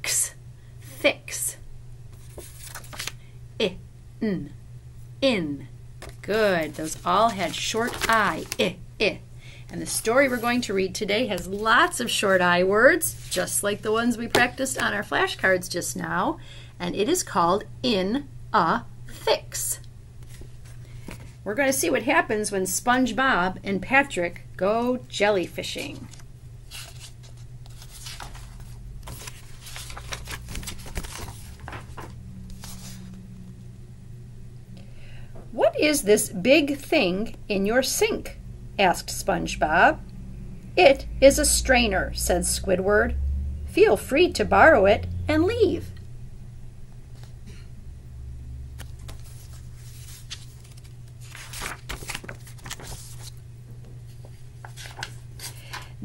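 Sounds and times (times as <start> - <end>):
steady low hum: 0.0 - 56.0
paper pages rustling: 2.1 - 3.2, 6.0 - 8.7, 13.0 - 15.0, 20.2 - 21.4, 25.8 - 33.2, 48.8 - 53.4, 54.1 - 55.9.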